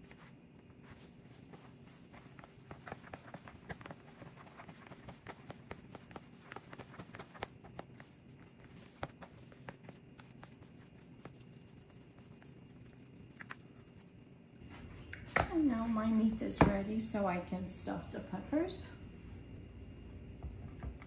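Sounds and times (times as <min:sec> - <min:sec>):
hand kneading meat stuffing: 0:00.0 - 0:14.3
low steady hum: 0:00.0 - 0:21.0.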